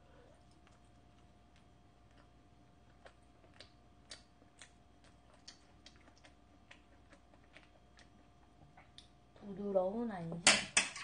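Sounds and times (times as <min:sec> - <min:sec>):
soft chewing mouth clicks: 0:00.1 - 0:09.2.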